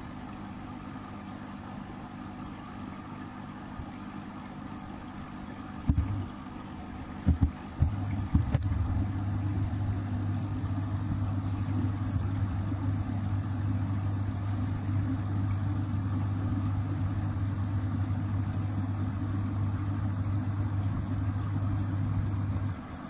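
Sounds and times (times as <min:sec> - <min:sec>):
air pump humming: 0:04.6 - 0:23.0.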